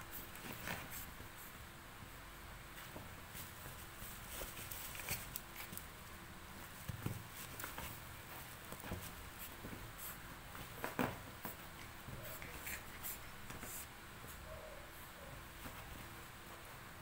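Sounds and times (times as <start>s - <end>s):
puppy scratching on fabric bed: 3.2s - 5.9s, 6.6s - 14.4s.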